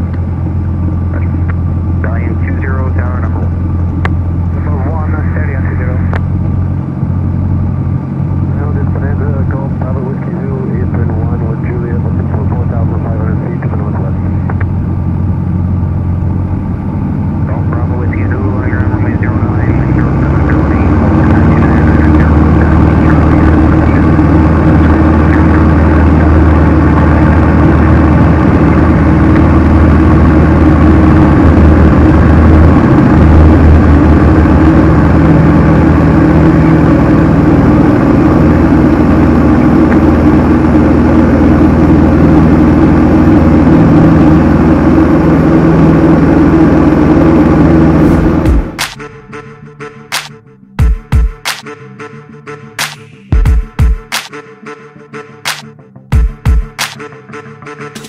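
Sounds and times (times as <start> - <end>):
aircraft piston engine and propeller: 0.0 - 51.8.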